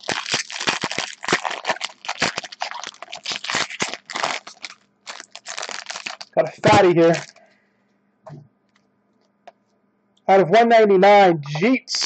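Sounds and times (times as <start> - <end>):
foil wrapper crinkling: 0.0 - 7.5.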